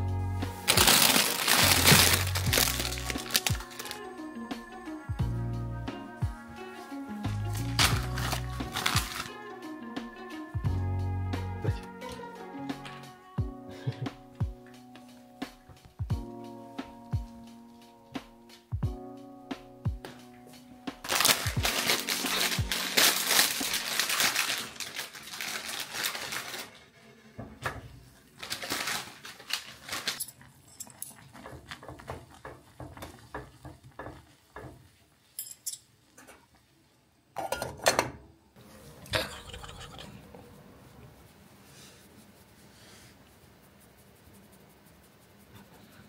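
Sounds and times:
chopsticks clinking in a metal pot: 30.2 - 32.0, 35.4 - 35.9.

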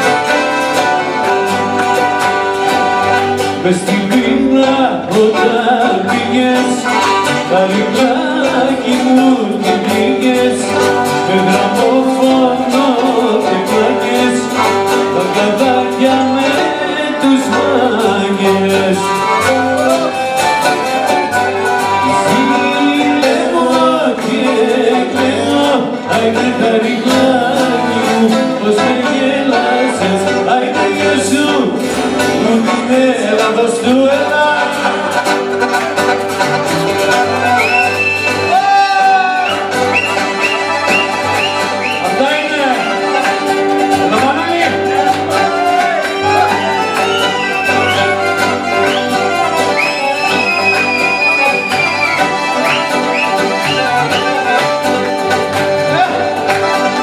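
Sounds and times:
accordion: 0.0 - 57.0
acoustic guitar: 0.0 - 57.0
lute: 0.0 - 57.0
man singing into a microphone: 3.4 - 20.2, 21.8 - 35.5, 37.4 - 40.4, 41.6 - 48.0
violin: 33.8 - 57.0.

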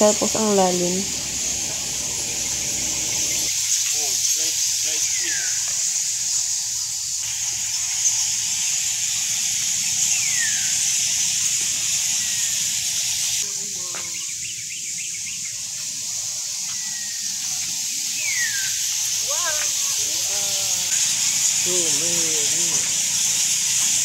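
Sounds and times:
descending whistled call: 0.0 - 6.0, 8.0 - 11.4, 16.6 - 23.4
high-pitched animal chorus hiss: 0.0 - 24.0.

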